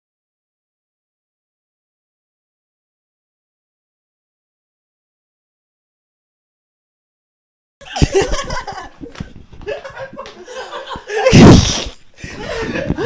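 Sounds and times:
people laughing: 7.8 - 13.0.

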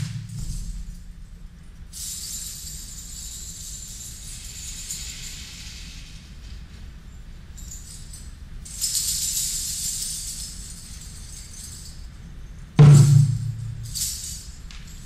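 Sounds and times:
deep drum stroke: 0.0 - 1.1, 12.8 - 13.9
jingling rattle shaken: 0.0 - 6.3, 7.2 - 15.0.

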